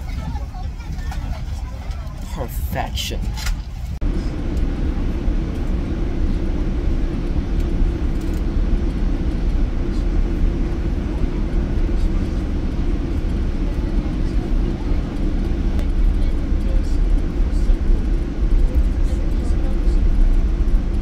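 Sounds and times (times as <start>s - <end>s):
airliner cabin engine rush: 0.0s - 21.0s.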